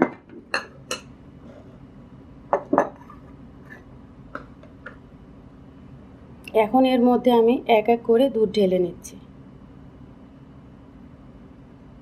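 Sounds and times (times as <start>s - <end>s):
glass bowls clinking on table: 0.0s - 1.1s, 2.5s - 3.2s.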